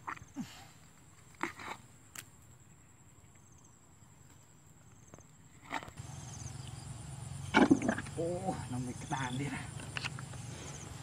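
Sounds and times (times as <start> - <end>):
low steady rumble: 6.0 - 11.0.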